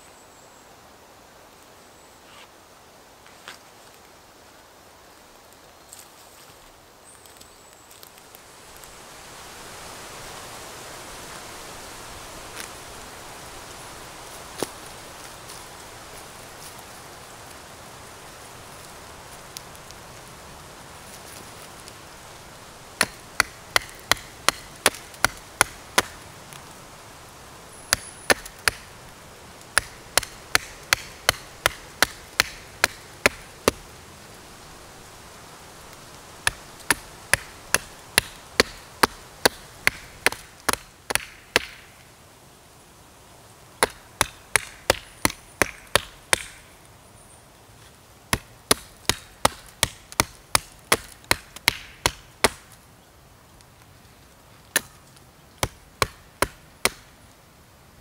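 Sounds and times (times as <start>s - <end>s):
blade chopping wood: 23.0s - 26.2s, 27.9s - 28.9s, 29.7s - 33.8s, 36.4s - 41.8s, 43.8s - 46.6s, 48.3s - 52.7s, 54.7s - 55.0s, 55.6s - 57.1s.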